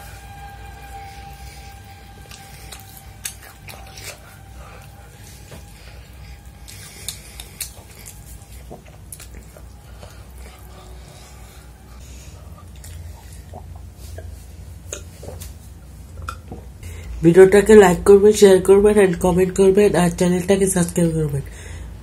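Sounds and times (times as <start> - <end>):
chewing and wet mouth sounds: 0.0 - 17.2
steady low hum: 0.0 - 22.0.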